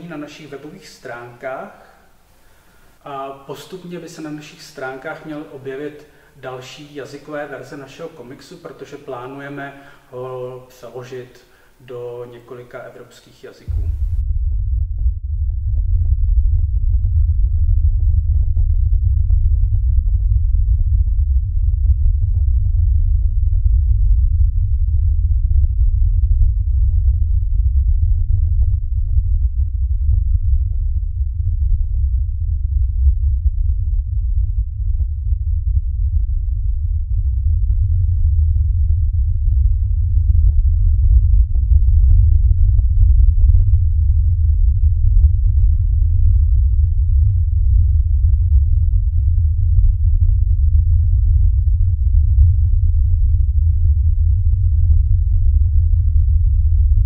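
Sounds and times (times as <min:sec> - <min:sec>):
deep bass rumble: 0:13.6 - 0:57.0.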